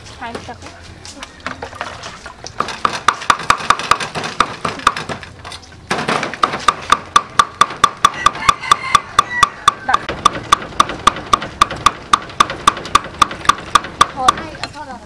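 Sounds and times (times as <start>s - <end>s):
cleaver chopping on wooden block: 2.6s - 5.2s, 5.9s - 14.6s.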